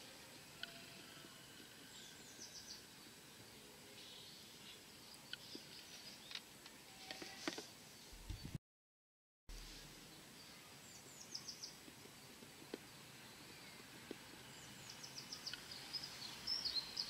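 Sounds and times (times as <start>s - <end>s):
small bird chirping: 13.3s - 17.0s.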